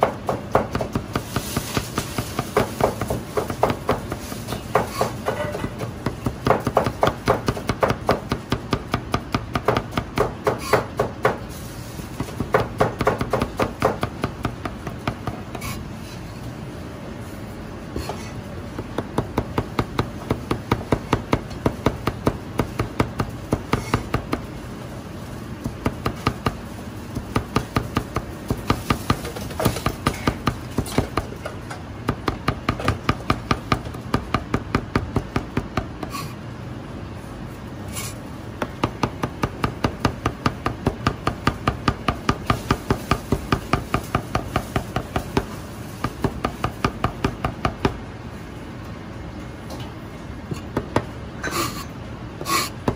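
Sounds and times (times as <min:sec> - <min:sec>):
cleaver chopping on cutting board: 0:12.2 - 0:15.7.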